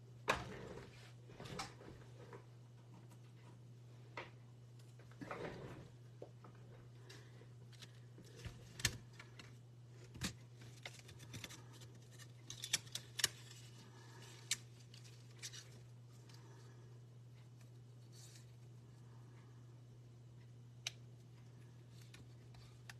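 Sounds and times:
steady low hum: 0.0 - 22.9.

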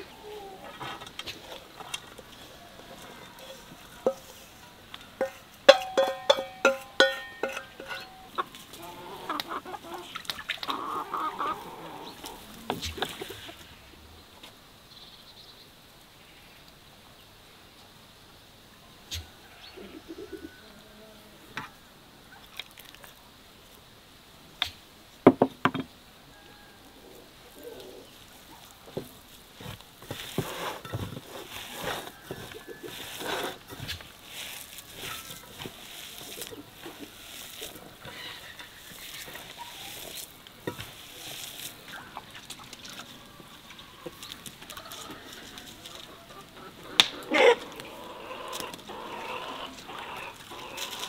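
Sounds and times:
hens clucking: 0.0 - 13.8, 26.9 - 51.0.

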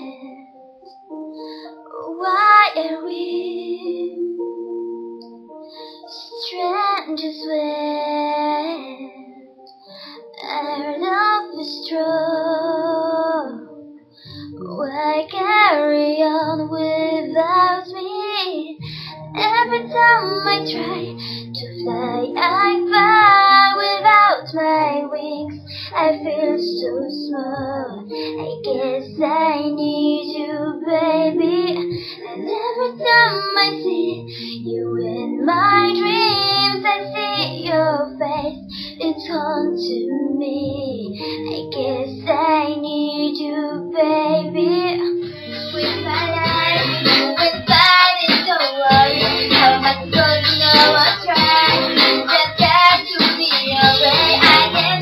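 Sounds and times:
girl singing a slow ballad: 0.0 - 0.6, 1.2 - 4.6, 5.4 - 55.0
instrumental backing: 18.6 - 55.0.

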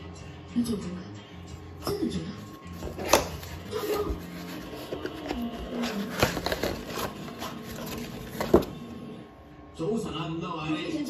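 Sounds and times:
cardboard rubbing and scraping: 2.8 - 8.8.

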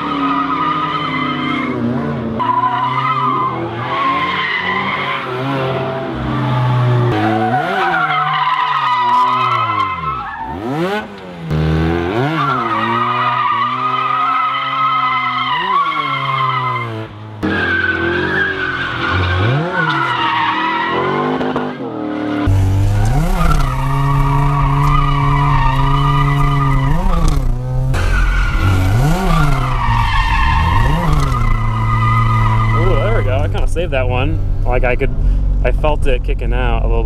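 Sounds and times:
car engines revving: 0.0 - 37.0
deep loud car engine: 9.0 - 37.0
tyres squealing: 22.6 - 33.6.

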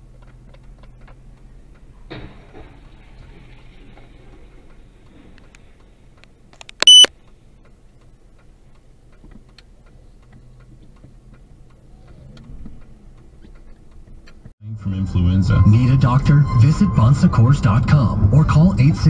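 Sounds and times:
high-pitched electronic beep: 6.8 - 7.1
car engine idling: 7.2 - 14.5.

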